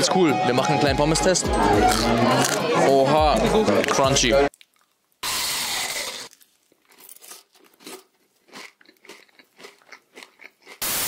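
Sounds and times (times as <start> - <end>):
crunching and chewing food: 3.8 - 5.2, 5.8 - 10.9.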